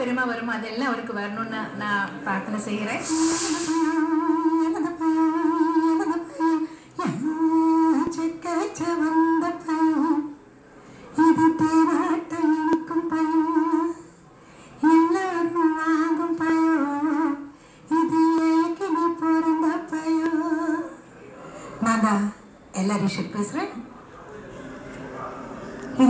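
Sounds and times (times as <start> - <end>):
breaths between phrases: 10.6 - 11.2, 14.1 - 14.8, 17.5 - 17.9.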